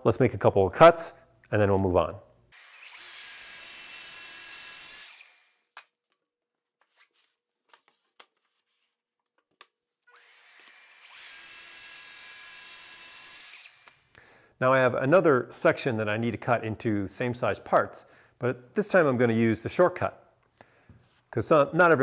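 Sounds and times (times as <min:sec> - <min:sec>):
saw cutting plywood: 0:02.6 - 0:05.6.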